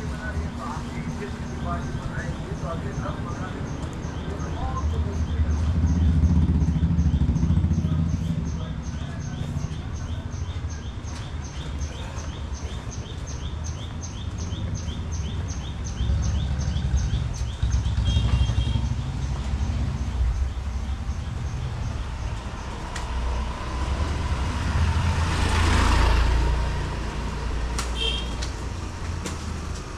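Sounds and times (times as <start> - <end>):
low rumble of traffic: 0.0 - 29.9.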